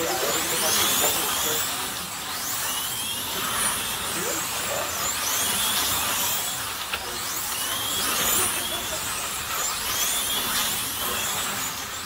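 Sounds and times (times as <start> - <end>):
slot car motors whining: 0.0 - 12.0.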